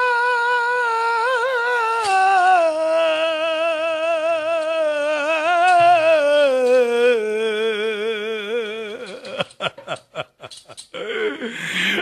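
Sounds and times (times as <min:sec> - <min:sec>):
person singing long vibrato note: 0:00.0 - 0:09.4.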